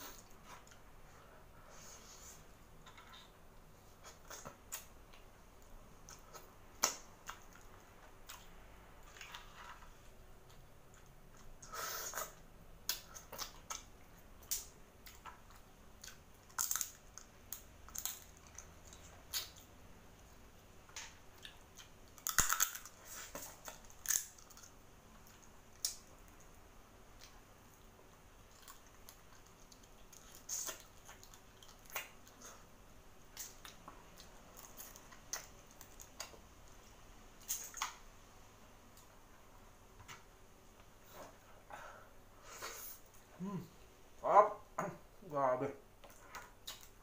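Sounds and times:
sucking and chewing: 0:20.9 - 0:32.7, 0:33.3 - 0:36.8, 0:46.0 - 0:47.0
lip smacks: 0:46.0 - 0:47.0.

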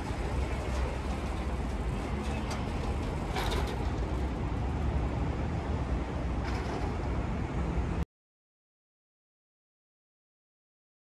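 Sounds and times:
city traffic rumble: 0:00.0 - 0:08.0.

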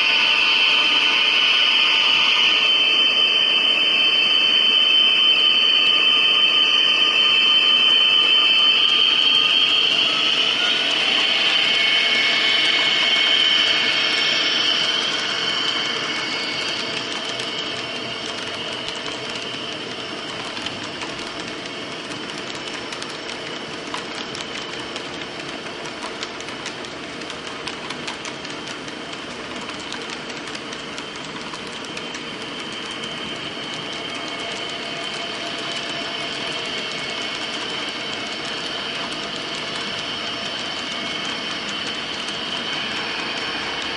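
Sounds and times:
model wheels clicking over rail joints: 0:16.6 - 0:43.5.

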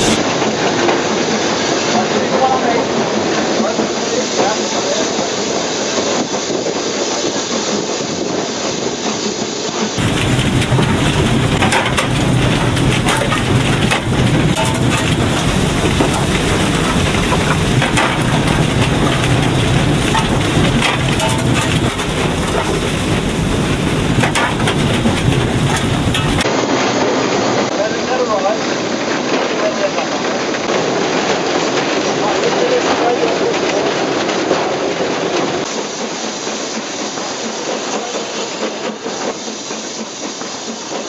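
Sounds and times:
steam locomotive rumble: 0:00.0 - 0:41.0
rattling clattering knocks: 0:10.0 - 0:26.5.

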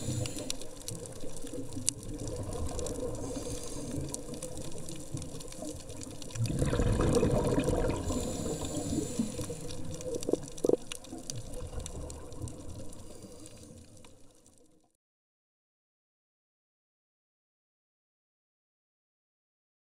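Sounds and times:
faint clicks: 0:00.0 - 0:07.4, 0:08.0 - 0:14.7
underwater watery wash: 0:00.0 - 0:14.9.

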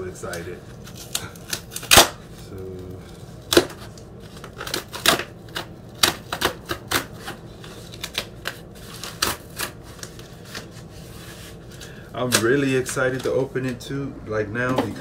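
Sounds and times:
cardboard ripping: 0:00.8 - 0:02.7, 0:03.4 - 0:13.5.

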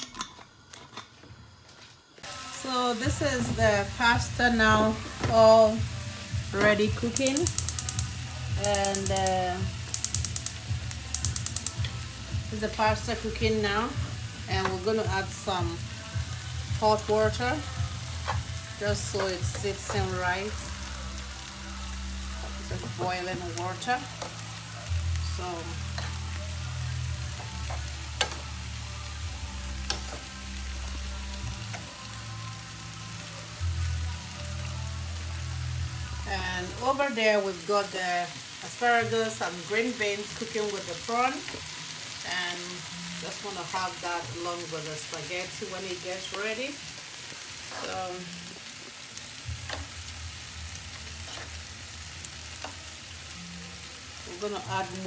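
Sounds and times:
sauce sizzling: 0:02.2 - 0:55.0
spoon clicking against pan: 0:07.2 - 0:08.0.

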